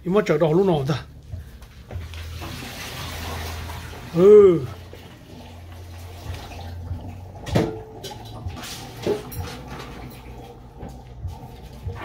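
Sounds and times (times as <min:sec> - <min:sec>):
low steady hum: 0:00.0 - 0:12.0
water splashing: 0:02.0 - 0:12.0
metal roaster pan clanks: 0:07.4 - 0:10.2.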